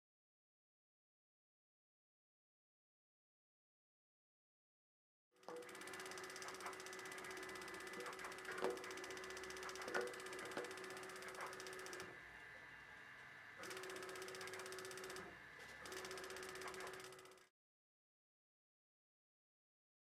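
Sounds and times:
mechanism clicks: 0:05.4 - 0:12.2, 0:13.6 - 0:17.5
wrapping machine whirring: 0:05.4 - 0:17.5.

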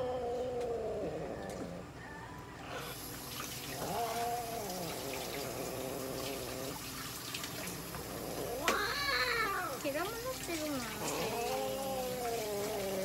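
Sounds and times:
cat yowling: 0:03.8 - 0:05.5, 0:08.3 - 0:09.8, 0:11.0 - 0:13.0.

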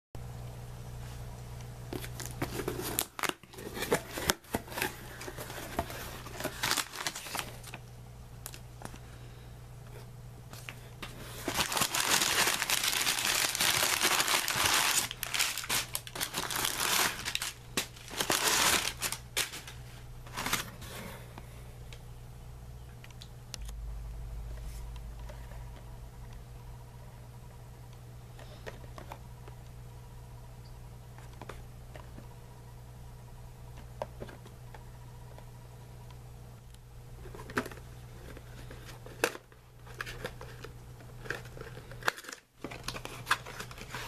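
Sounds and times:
packing paper crumpling: 0:02.0 - 0:07.8, 0:10.6 - 0:20.8, 0:37.2 - 0:44.0.

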